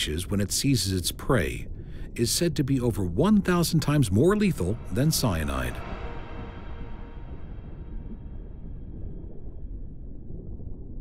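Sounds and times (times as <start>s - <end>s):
low steady rumbling ambience: 0.0s - 11.0s
faint held music chord: 3.2s - 9.2s.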